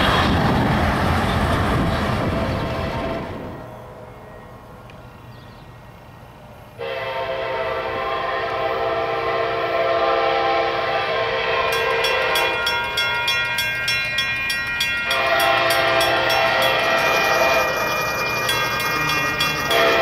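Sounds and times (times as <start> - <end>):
locomotive air horn: 6.8 - 12.7, 15.0 - 17.8, 19.7 - 20.0
crossing bell dinging: 11.6 - 20.0.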